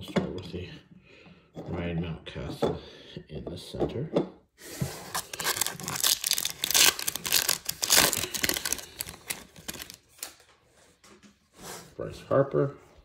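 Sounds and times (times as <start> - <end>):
foil wrapper crackling: 5.2 - 10.3.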